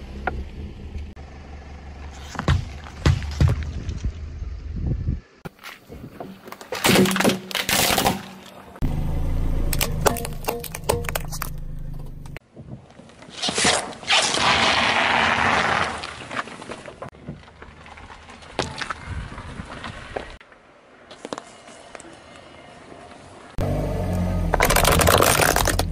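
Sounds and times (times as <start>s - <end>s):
low car hum: 0.0s - 5.4s, 8.6s - 12.4s, 23.4s - 25.9s
watermelon being crushed: 24.5s - 25.9s
plastic packets bursting under tyre: 24.6s - 25.9s.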